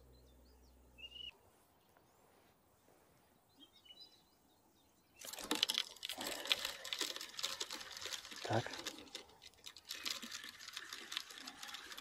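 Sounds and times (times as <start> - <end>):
faint songbird chirps: 0.0 - 5.4.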